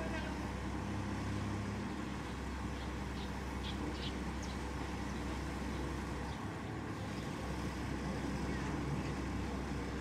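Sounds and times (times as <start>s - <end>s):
diesel engine droning: 0.0s - 10.0s.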